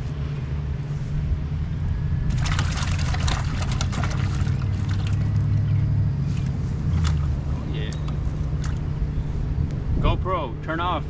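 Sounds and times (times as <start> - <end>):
wind rumble on microphone: 0.0 - 11.0
water splashing in a bucket: 2.3 - 5.7, 6.4 - 7.5, 8.5 - 8.9.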